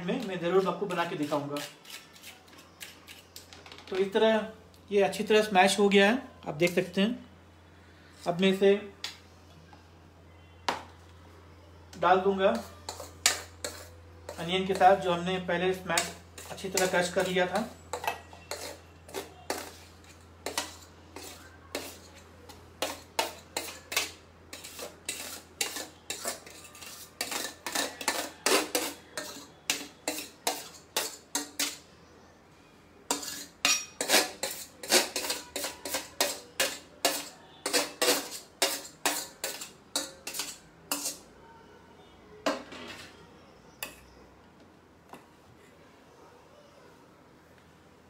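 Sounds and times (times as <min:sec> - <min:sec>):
spoon clinking and scraping plate: 0:12.5 - 0:15.2, 0:15.9 - 0:31.9, 0:33.1 - 0:41.3.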